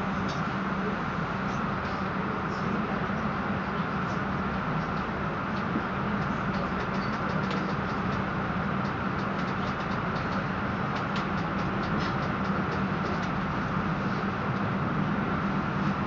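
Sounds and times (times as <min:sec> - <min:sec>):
train carriage low hum: 0:00.0 - 0:16.0.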